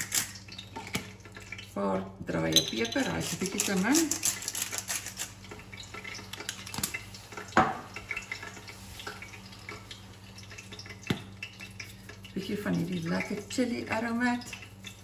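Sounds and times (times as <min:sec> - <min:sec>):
pepper grinder twisting: 0:00.0 - 0:00.4, 0:03.0 - 0:05.4.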